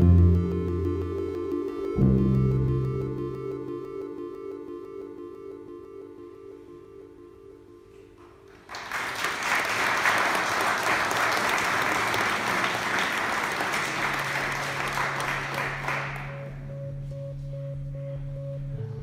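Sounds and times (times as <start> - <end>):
low sustained musical tone: 0.0 - 8.5, 14.6 - 19.0
audience applauding: 8.5 - 16.5.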